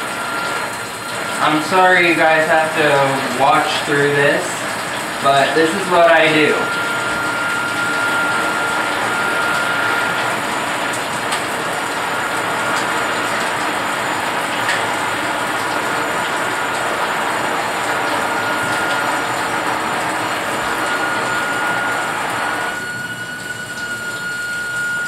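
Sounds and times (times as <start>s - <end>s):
shower water splashing into tub: 0.0s - 25.0s
faint high whistle: 22.7s - 25.0s.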